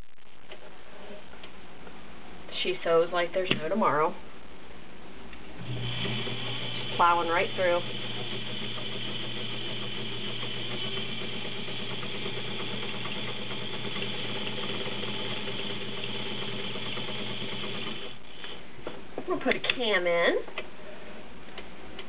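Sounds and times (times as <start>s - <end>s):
sewing machine running: 5.6s - 18.6s.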